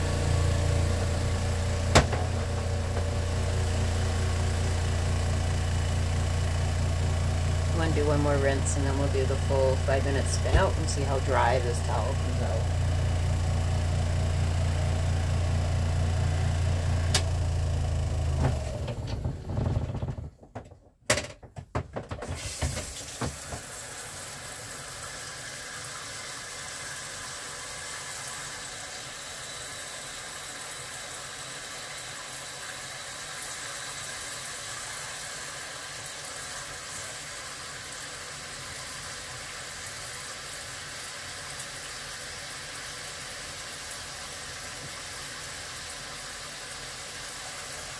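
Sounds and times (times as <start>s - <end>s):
washing machine motor humming: 0.0s - 20.7s, 21.5s - 47.9s
knocks and clatter: 1.9s - 3.1s, 18.4s - 23.6s.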